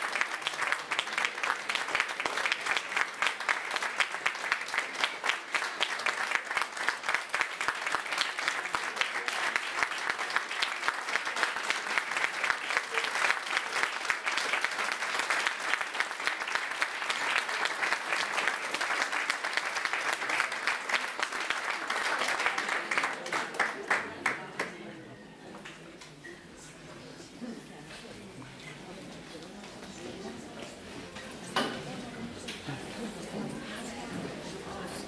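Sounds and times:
audience applauding: 0:00.0 - 0:24.8.

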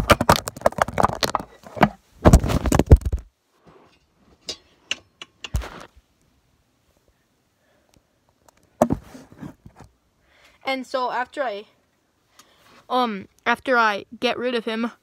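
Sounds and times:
phone handling noise and thumps: 0:00.0 - 0:03.3.

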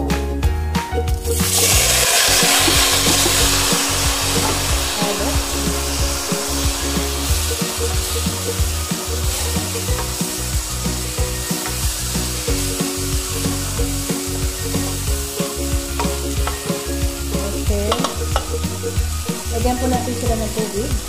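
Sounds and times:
steady hum: 0:02.3 - 0:08.7.

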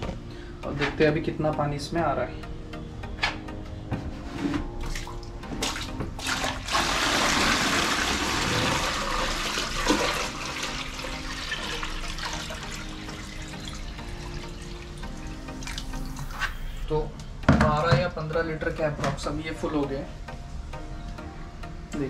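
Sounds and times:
water pouring into plastic tank: 0:04.8 - 0:14.8.

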